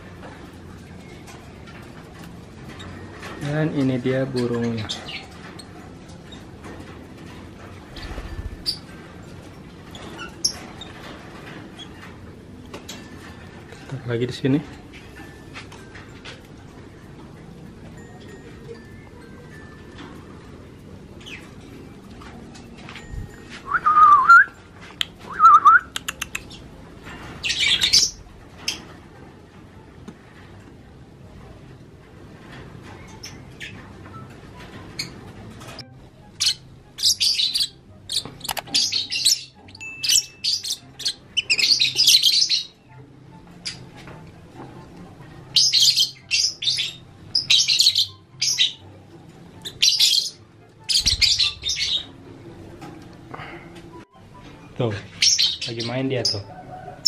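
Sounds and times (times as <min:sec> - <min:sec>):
lovebirds chirping: 0:07.9 - 0:13.9, 0:25.0 - 0:28.9, 0:32.9 - 0:44.1, 0:45.5 - 0:52.6, 0:53.3 - 0:56.5
person whistling: 0:23.7 - 0:24.5
sharp clicks: 0:25.9 - 0:26.5.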